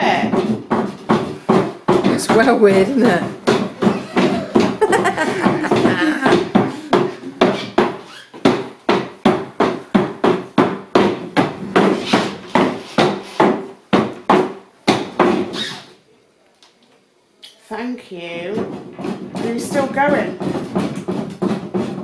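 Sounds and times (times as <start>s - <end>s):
wooden table knocking on floor: 0.0s - 12.8s, 18.5s - 22.0s.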